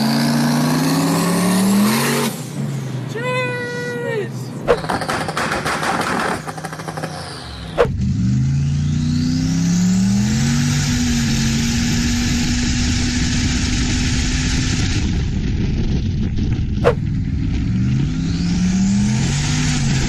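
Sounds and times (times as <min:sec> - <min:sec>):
car engine accelerating: 0:04.7 - 0:20.0.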